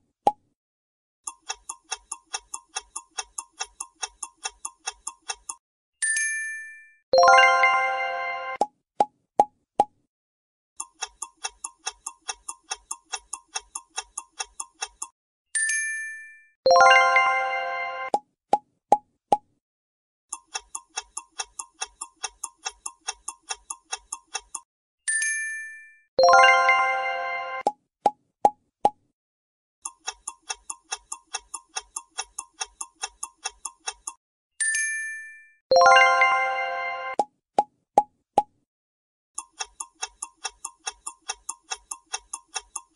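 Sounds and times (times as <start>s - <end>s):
clock ticking: 1.2s - 5.6s, 10.8s - 15.2s, 20.3s - 24.7s, 29.8s - 34.2s, 39.4s - 42.9s
ringing chime: 6.0s - 8.5s, 15.6s - 18.0s, 25.1s - 27.5s, 34.6s - 37.0s.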